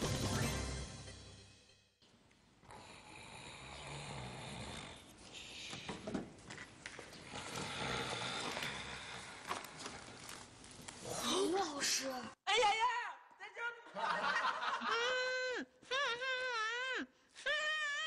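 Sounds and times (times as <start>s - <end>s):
man snoring: 2.6s - 5.1s, 7.3s - 9.3s.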